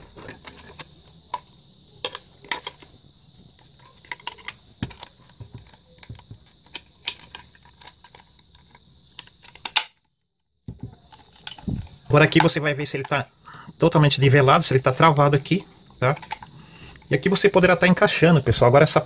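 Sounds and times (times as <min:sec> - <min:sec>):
plastic parts clicking and knocking: 0:00.0 - 0:13.2, 0:14.9 - 0:17.2
steady hiss: 0:10.9 - 0:19.0.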